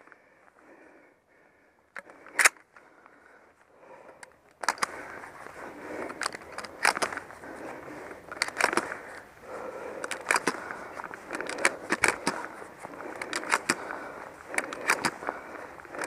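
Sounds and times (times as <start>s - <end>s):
firearm handling clicks and knocks: 1.9s - 2.8s, 4.2s - 5.3s, 5.9s - 7.4s, 8.3s - 9.2s, 9.9s - 16.0s.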